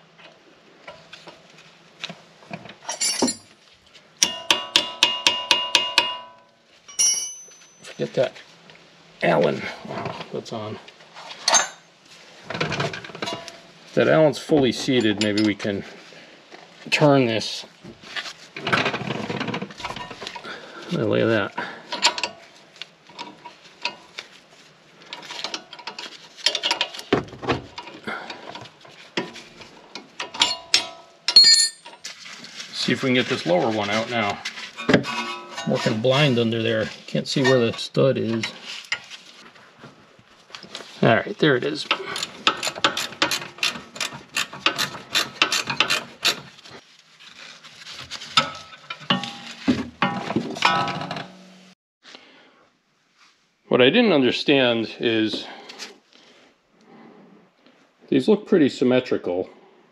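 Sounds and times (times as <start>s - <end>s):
metal knocks and clinks: 2.8s - 3.5s, 4.2s - 8.0s, 11.5s - 11.8s, 30.3s - 32.0s
wrench clicking and scraping: 41.9s - 46.5s.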